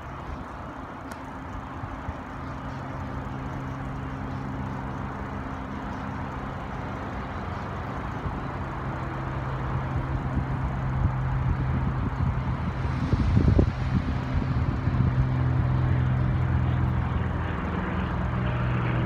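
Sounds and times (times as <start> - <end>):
diesel locomotive engine hum: 0.0 - 19.0.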